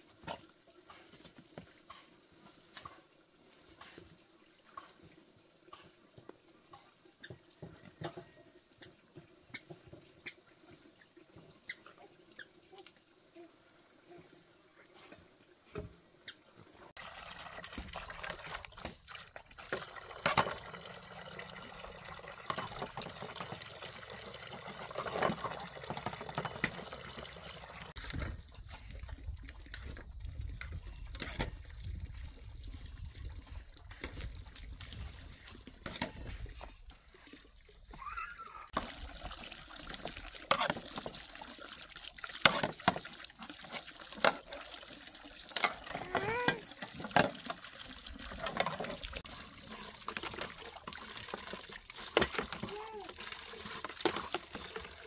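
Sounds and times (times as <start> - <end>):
water splashing and trickling: 0.0 - 55.0.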